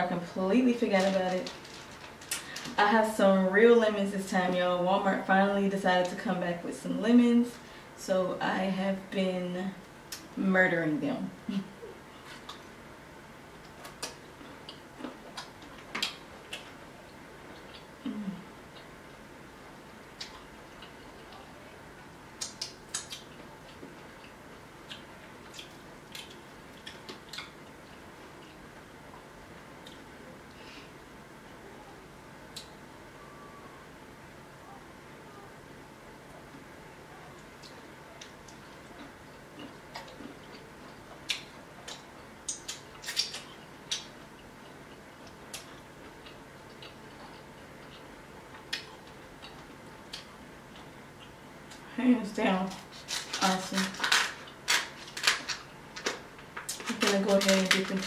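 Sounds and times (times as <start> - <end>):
faint steady hiss: 0.0 - 58.0
person chewing with wet mouth clicks: 22.4 - 28.6
shrimp shell cracking: 53.1 - 56.9.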